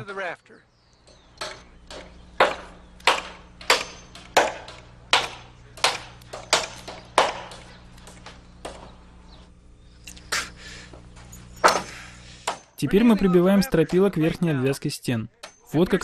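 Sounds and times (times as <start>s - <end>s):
hammer driving nails into wood: 1.4s - 8.9s.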